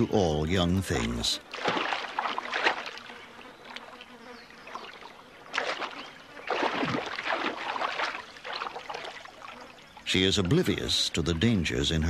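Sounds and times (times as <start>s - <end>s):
hippos splashing in water: 0.7s - 10.9s.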